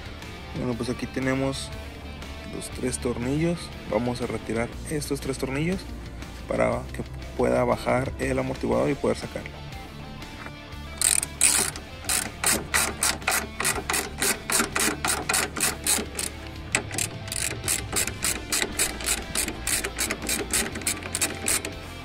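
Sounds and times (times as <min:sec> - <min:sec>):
hand ratchet clicking: 0:11.0 - 0:21.8.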